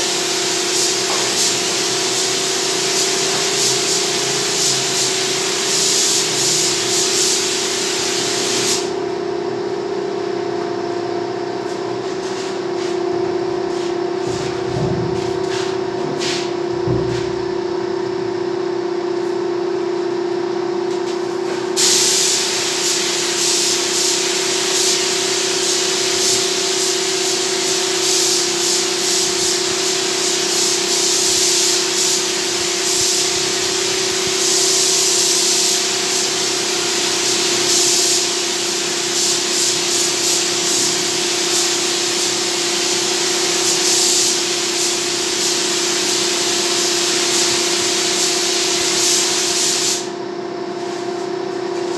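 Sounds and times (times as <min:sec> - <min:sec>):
spray gun hissing: 0:00.1 - 0:08.9, 0:21.8 - 0:50.1
steady hum: 0:00.6 - 0:38.5.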